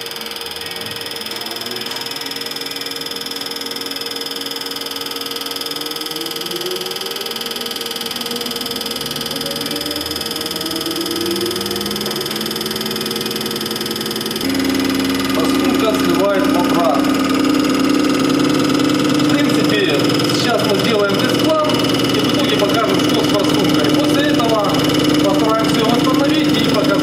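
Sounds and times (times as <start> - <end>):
motor and pump whine: 0.0 - 27.0
low tone rising in pitch: 6.0 - 19.4.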